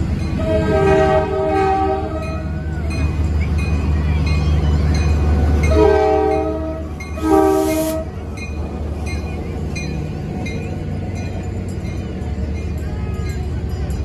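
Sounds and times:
diesel locomotive engine rumbling: 0.0 - 14.0
locomotive air horn blasts: 0.4 - 2.4, 5.6 - 8.2.

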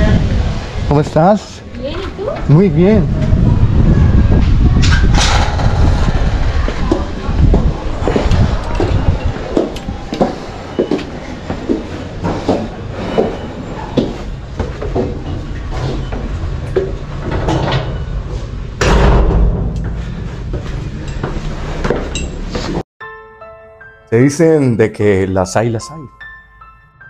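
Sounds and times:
low steady rumble: 3.2 - 9.2
loud thud: 4.7 - 7.8, 18.8 - 20.6
footsteps on tiled floor: 6.4 - 17.0, 19.9 - 22.8.

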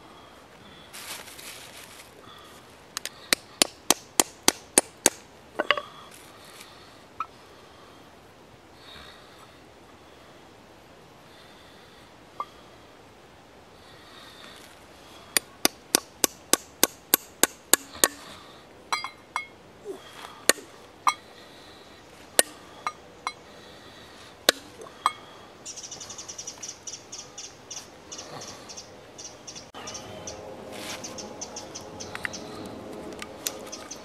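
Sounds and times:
hammer striking nails: 3.3 - 5.2, 15.4 - 18.3
metallic clinks and taps: 18.9 - 19.6
rapid high chirping: 25.6 - 32.6.

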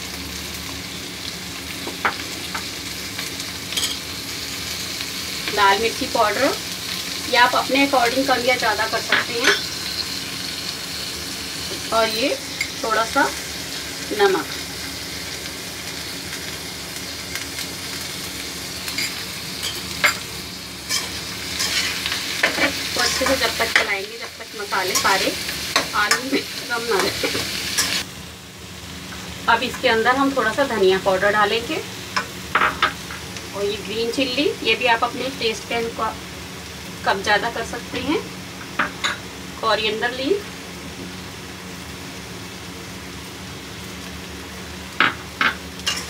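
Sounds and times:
short crackles of frying oil: 0.0 - 28.1, 36.5 - 46.0
vegetables sizzling in hot oil: 0.0 - 46.0.

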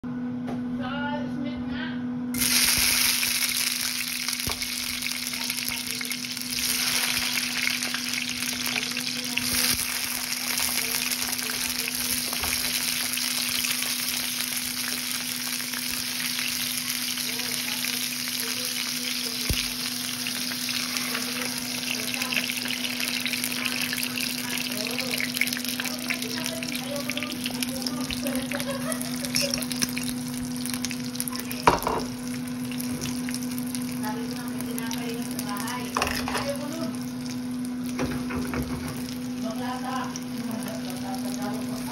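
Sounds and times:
steady hum: 0.0 - 41.9
tomatoes sizzling in hot oil: 2.4 - 41.9.

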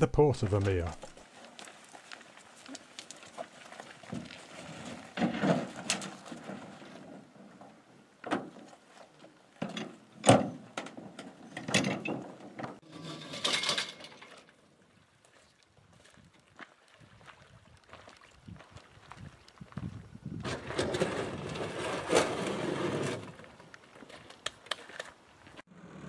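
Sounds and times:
metal boats scraping and clattering: 4.0 - 8.9, 9.6 - 14.6, 20.4 - 23.6.

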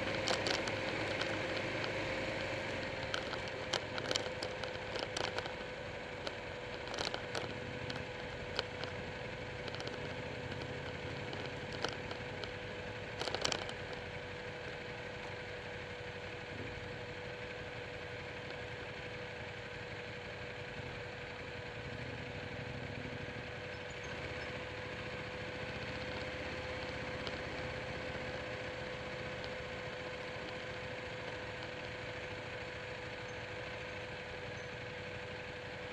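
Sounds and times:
sharp ticks: 0.0 - 14.5, 23.7 - 32.4
constant high hum: 0.0 - 35.9
motorcycle engine running: 0.0 - 35.9.

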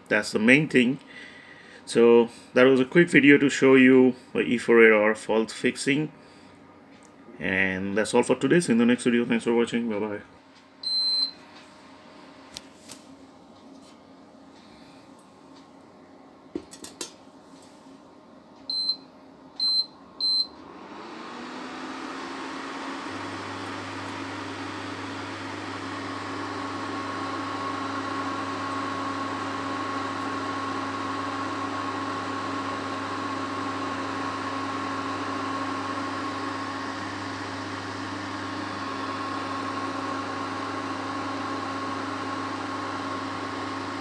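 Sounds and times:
low electrical hum: 0.0 - 20.6
cooling fan whirring: 0.0 - 44.0.

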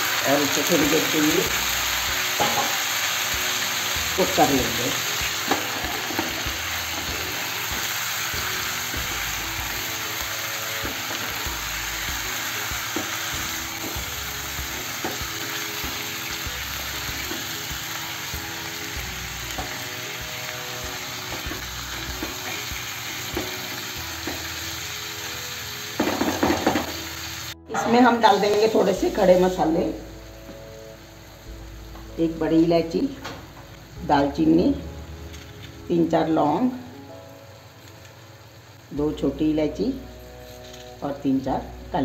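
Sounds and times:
chicken sizzling in hot fat: 0.0 - 41.4.

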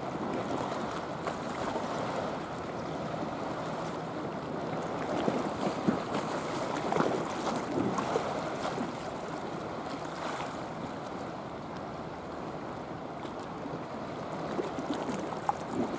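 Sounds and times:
sea water lapping and sloshing: 0.0 - 15.9.

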